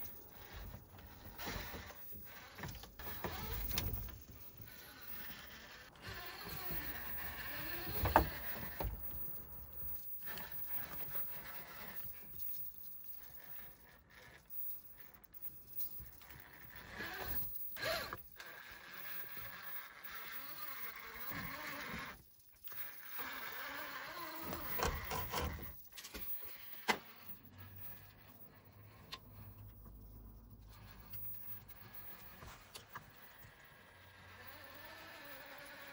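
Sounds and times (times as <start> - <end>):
electric motor whining: 0.0 - 9.3, 15.8 - 25.8, 30.7 - 35.9.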